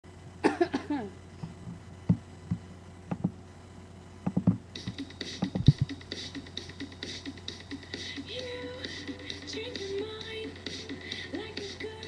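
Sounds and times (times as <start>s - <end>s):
steady low hum: 0.0s - 12.0s
soft thumps and knocks: 1.4s - 3.4s, 4.2s - 6.0s.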